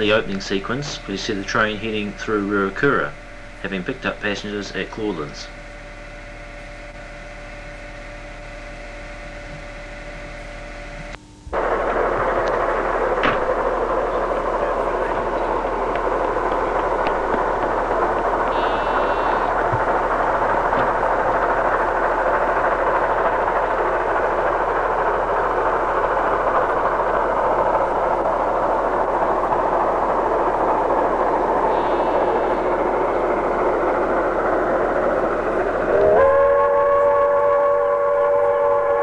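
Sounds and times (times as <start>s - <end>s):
steady rushing noise: 11.5s - 36.1s
steam locomotive whistle: 18.4s - 21.2s, 35.7s - 39.0s.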